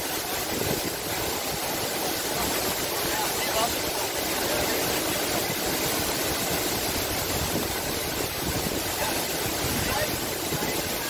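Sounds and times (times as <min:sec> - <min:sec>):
waterfall crashing into pool: 0:00.0 - 0:11.0.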